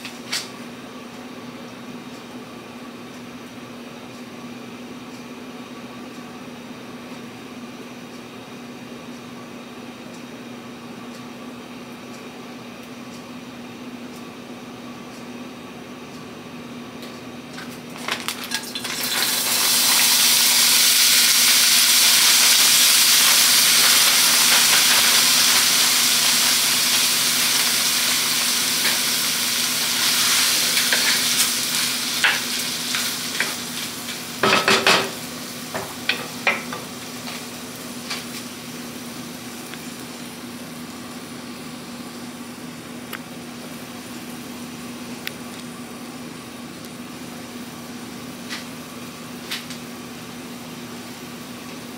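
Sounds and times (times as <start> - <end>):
food sizzling in a wok: 18.3 - 42.7, 47.5 - 51.9
spatula knocking and scraping pan: 34.4 - 35.2, 35.8 - 37.4.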